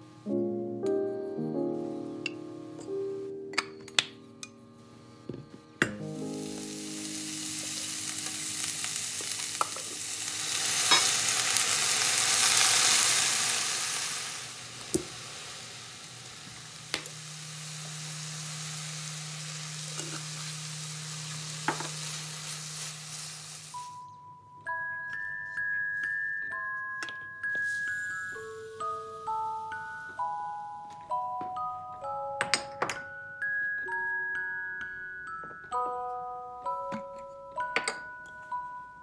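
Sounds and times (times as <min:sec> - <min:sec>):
vegetables sizzling in oil: 0:06.0 - 0:24.0.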